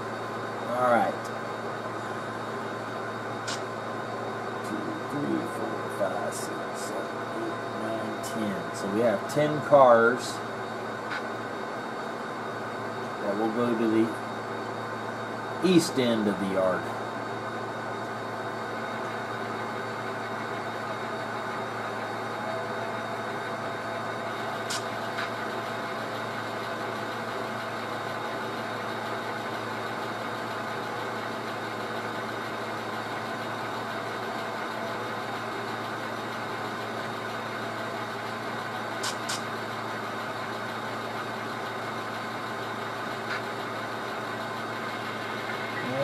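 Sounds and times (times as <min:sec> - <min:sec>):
model diesel engine sound: 0:00.0 - 0:46.0
sharp clicks: 0:39.0 - 0:39.5.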